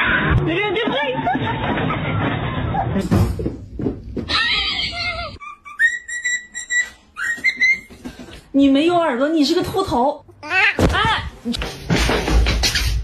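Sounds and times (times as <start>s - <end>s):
cockatiel whistling: 5.4s - 7.9s.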